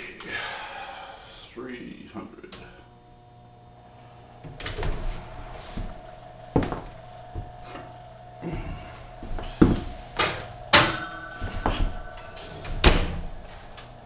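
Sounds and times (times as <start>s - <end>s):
oven door shutting: 4.4s - 5.9s, 9.6s - 14.0s
oven rack metallic rattle: 10.2s - 13.4s.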